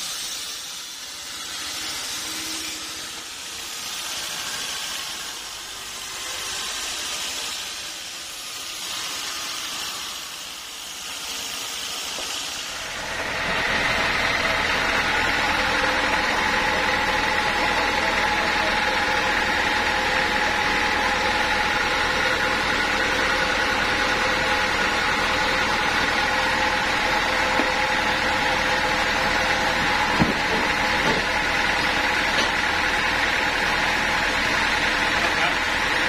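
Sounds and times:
band saw hissing: 0:00.0 - 0:14.2
machine whine over low hum: 0:12.7 - 0:36.0.

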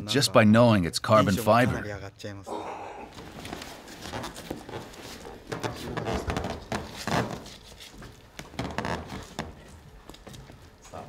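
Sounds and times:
knocks and thuds of leg brace: 0:03.1 - 0:09.6.

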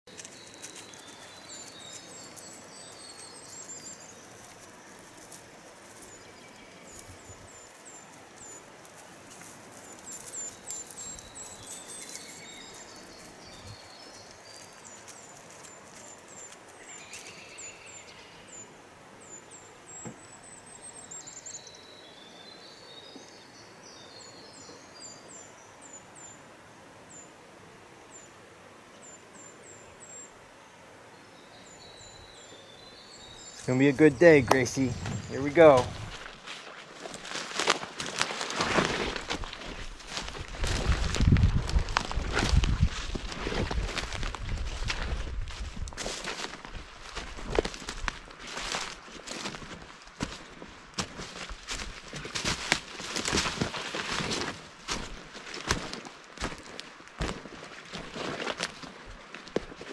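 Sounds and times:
songbird singing: 0:00.1 - 0:37.2.

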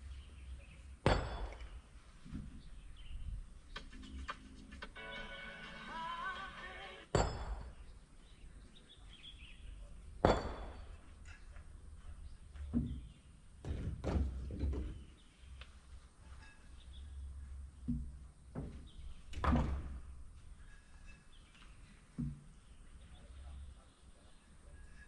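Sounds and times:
sharp knocks: 0:10.2 - 0:11.0.

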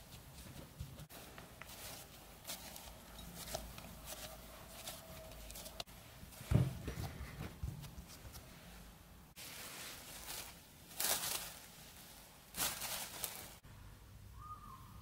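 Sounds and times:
hands patting dough: 0:00.0 - 0:08.7.

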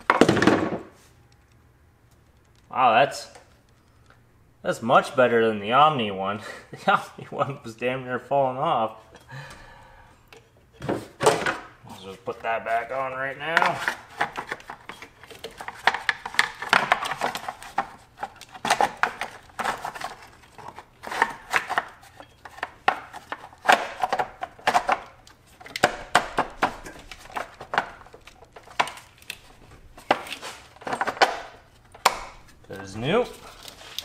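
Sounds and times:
clicks and rattles of car parts: 0:13.5 - 0:32.6.

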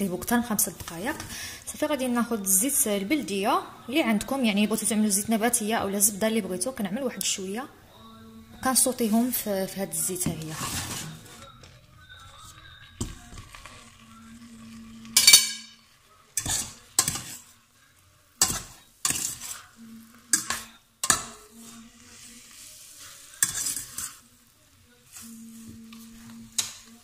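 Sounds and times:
light sizzle: 0:08.6 - 0:27.0
utensil scraping metal pot: 0:08.7 - 0:17.7, 0:18.4 - 0:24.4, 0:25.0 - 0:27.0.

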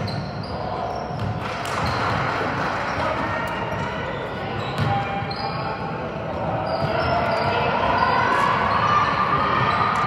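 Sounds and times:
sneakers squeaking: 0:00.0 - 0:10.0
spectators' voices: 0:00.5 - 0:10.0
basketball bouncing on court: 0:01.1 - 0:02.3, 0:04.6 - 0:05.3.

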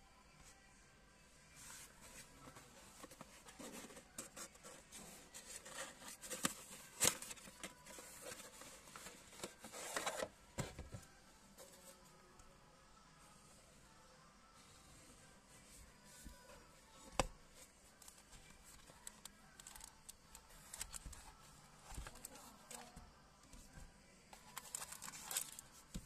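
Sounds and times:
cardboard scraping and rustling: 0:01.8 - 0:11.0.

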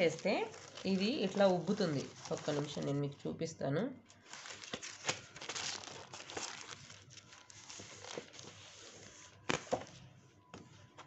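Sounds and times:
plastic sheeting crinkling: 0:00.0 - 0:03.2, 0:04.2 - 0:09.8.

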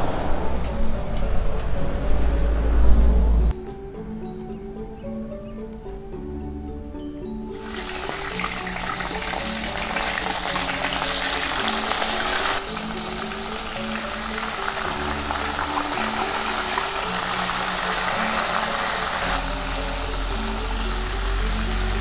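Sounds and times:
background music: 0:00.0 - 0:22.0
fish sizzling in hot oil: 0:07.5 - 0:22.0.

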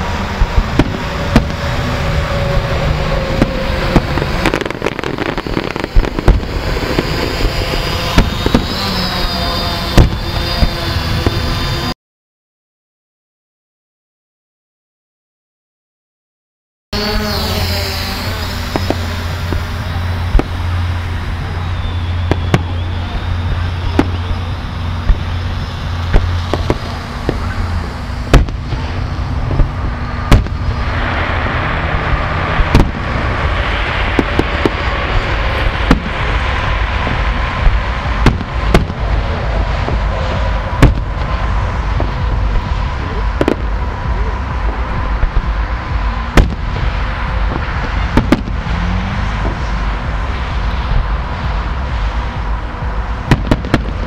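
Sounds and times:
steady rushing background: 0:00.0 - 0:11.9, 0:17.0 - 0:54.0
firework shells bursting: 0:00.4 - 0:11.6, 0:17.5 - 0:22.9, 0:23.5 - 0:31.8, 0:32.5 - 0:43.8.

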